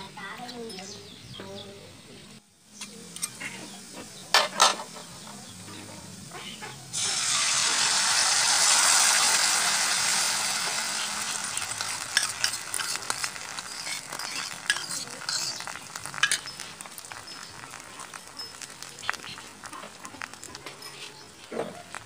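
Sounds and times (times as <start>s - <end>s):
egg sizzling in hot oil: 2.6s - 22.0s
oil crackling and popping: 2.8s - 22.0s.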